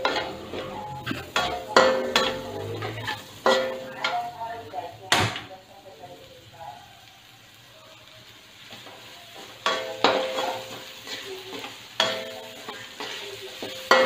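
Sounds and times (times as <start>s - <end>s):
metal spatula clanging on wok: 0.0s - 4.5s, 8.7s - 14.0s
oil sizzling: 0.0s - 14.0s.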